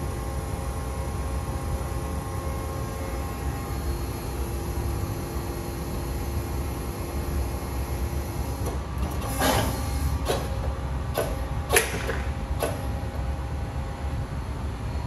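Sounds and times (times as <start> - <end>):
pump motor humming: 2.9 - 13.2.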